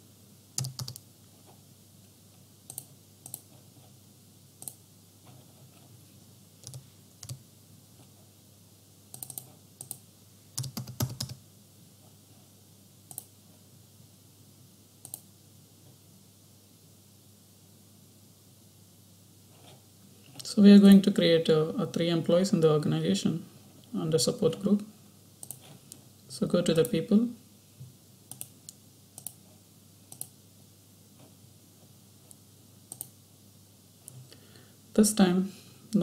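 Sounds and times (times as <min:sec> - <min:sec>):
faint steady hum: 0:00.0 - 0:36.0
keyboard keystrokes: 0:00.6 - 0:01.0, 0:06.6 - 0:07.4, 0:09.2 - 0:10.0, 0:10.6 - 0:11.4
mouse clicks: 0:02.7 - 0:03.5, 0:13.1 - 0:13.3, 0:15.0 - 0:15.3, 0:25.4 - 0:25.6, 0:28.3 - 0:29.4, 0:30.1 - 0:30.3, 0:32.3 - 0:33.2.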